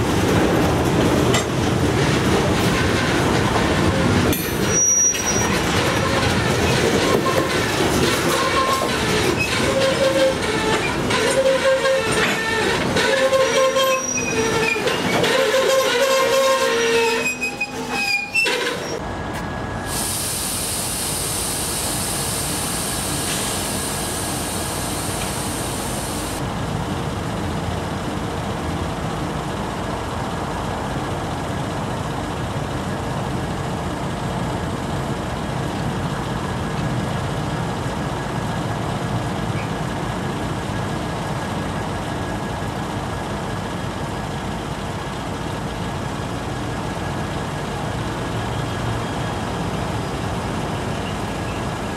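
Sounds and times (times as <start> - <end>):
diesel locomotive engine idling: 0.0 - 51.9
train wheels squealing: 4.6 - 7.6, 8.2 - 20.0, 48.5 - 51.9.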